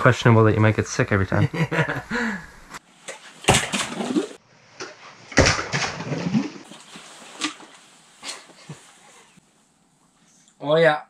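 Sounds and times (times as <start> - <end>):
rustling handling noise: 6.6 - 10.4.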